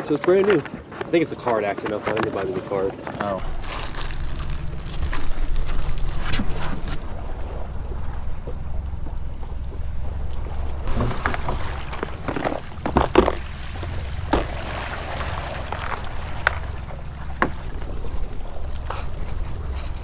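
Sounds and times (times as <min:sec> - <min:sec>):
steady low rumble: 0:03.4 - 0:20.0.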